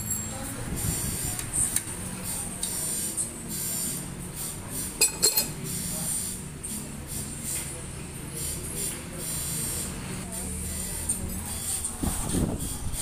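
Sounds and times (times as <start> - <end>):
ringing metallic clinks: 0.0 - 0.5
metal tools clinking: 5.0 - 5.5.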